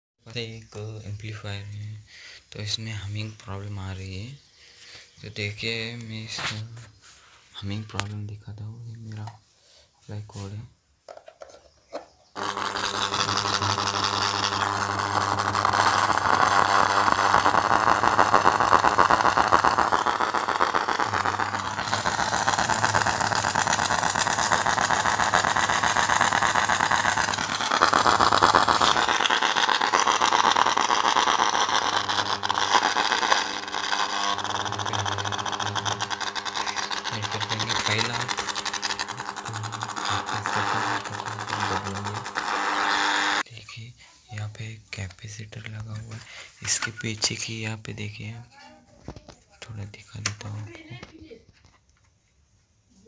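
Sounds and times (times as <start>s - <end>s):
loudspeaker mains hum with buzz: 12.4s - 43.4s.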